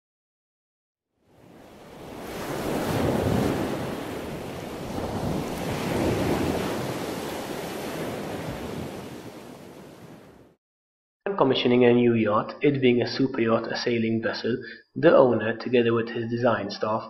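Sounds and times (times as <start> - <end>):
ocean waves washing in: 1.2 - 10.6.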